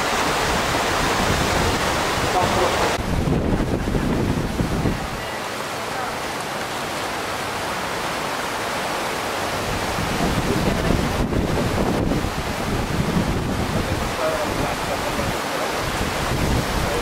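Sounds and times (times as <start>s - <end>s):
wind buffeting microphone: 0.0s - 5.2s, 9.5s - 17.0s
whitewater rushing: 0.0s - 17.0s.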